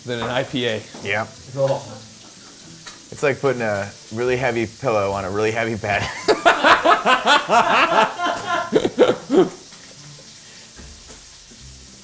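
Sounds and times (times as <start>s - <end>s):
sausage sizzling in a skillet: 0.0s - 12.0s
people laughing: 5.9s - 9.6s.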